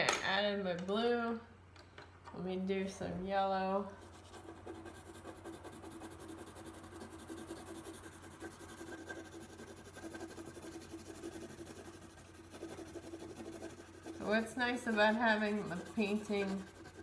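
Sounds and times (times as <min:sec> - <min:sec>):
low electrical hum: 0:00.0 - 0:17.0
pencil scratching on paper: 0:04.0 - 0:17.0.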